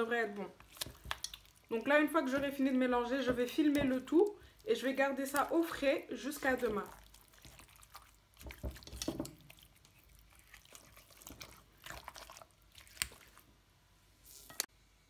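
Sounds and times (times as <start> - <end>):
wet stirring in a bowl: 0.5 - 13.6.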